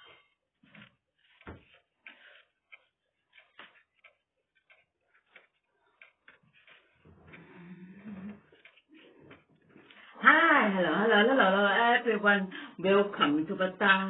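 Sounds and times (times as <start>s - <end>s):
faint clicks and taps: 0.6s - 10.1s.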